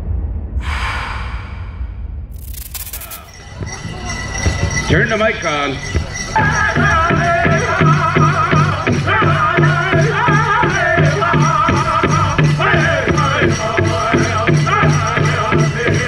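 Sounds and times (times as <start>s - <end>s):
dancers' bells rattling: 3.2s - 16.0s.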